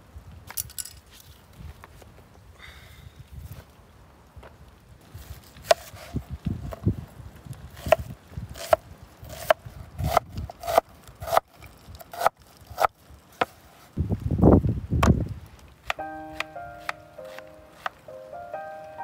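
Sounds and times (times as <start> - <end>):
knife cutting onion on wooden board: 5.6 - 6.8, 7.8 - 13.6, 15.8 - 18.0.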